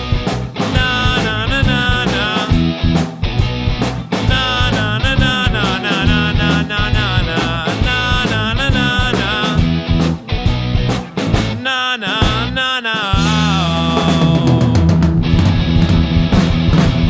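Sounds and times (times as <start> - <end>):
electric bass guitar: 0.0 - 11.6, 12.2 - 12.6, 13.2 - 17.0
drum kit: 0.0 - 17.0
guitar: 0.0 - 17.0
man singing: 0.6 - 2.8, 4.1 - 9.9, 11.4 - 15.2.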